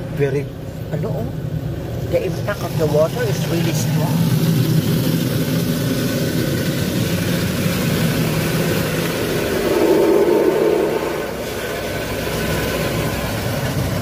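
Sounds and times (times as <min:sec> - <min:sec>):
low machine drone: 0:04.2 - 0:14.0.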